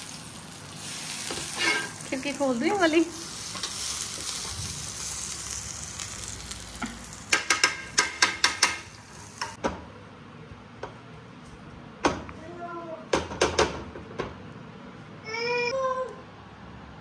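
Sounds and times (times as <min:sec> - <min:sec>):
butter sizzling in a frying pan: 0:00.0 - 0:09.6
sharp clicks and knocks on pan: 0:06.8 - 0:09.8, 0:13.1 - 0:14.4.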